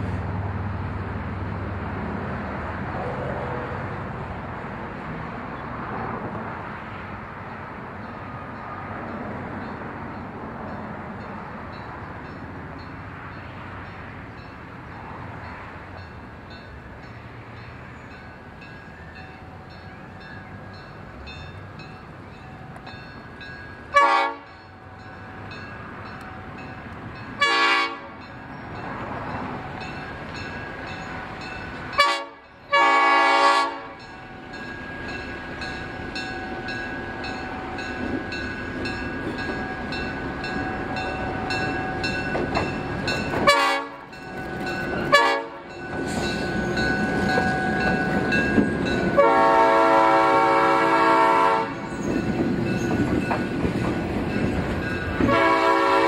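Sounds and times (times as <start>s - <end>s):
train rumble: 0.0s - 56.0s
train horn blasts: 23.9s - 24.7s, 27.4s - 28.2s, 31.9s - 34.1s, 43.4s - 44.2s, 45.0s - 46.3s, 48.9s - 51.9s, 55.2s - 56.0s.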